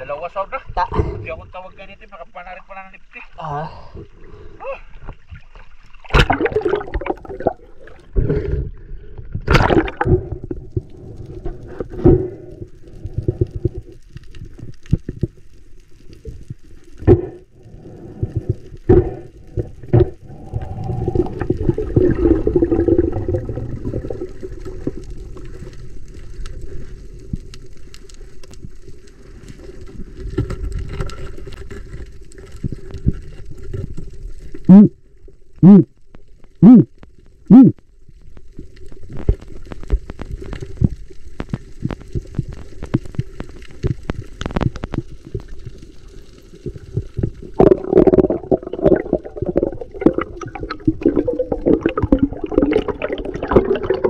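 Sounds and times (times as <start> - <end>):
water sloshing and splashing: 5.0 - 12.3, 41.5 - 54.0.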